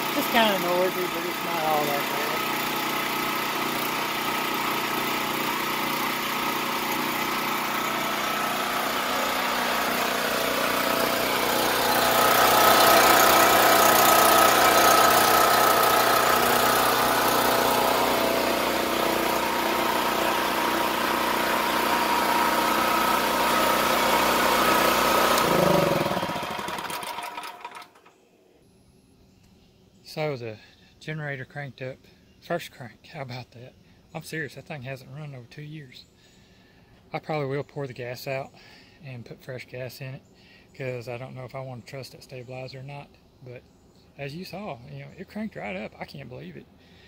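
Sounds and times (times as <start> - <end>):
portable generator engine running: 0.0 - 28.0.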